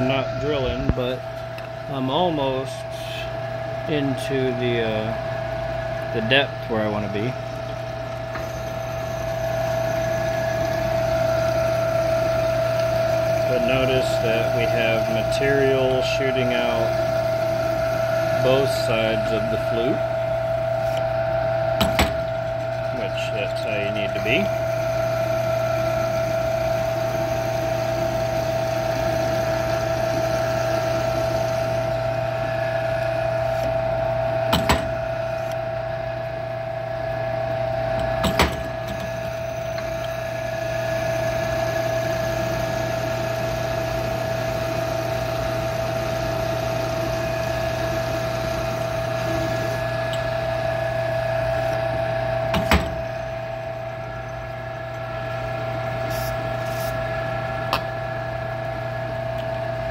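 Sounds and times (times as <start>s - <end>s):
metal lathe whining: 0.0s - 59.9s
drill boring into metal: 6.1s - 21.0s, 21.8s - 33.7s, 38.0s - 53.8s.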